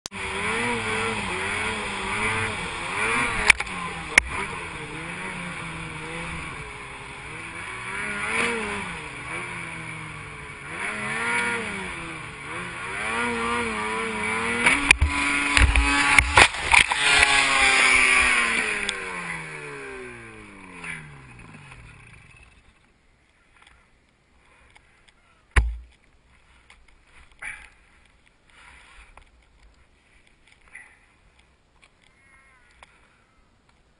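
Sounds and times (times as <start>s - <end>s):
snowmobile engine revving: 0.1s - 22.8s
knocks and thumps: 25.6s - 26.0s.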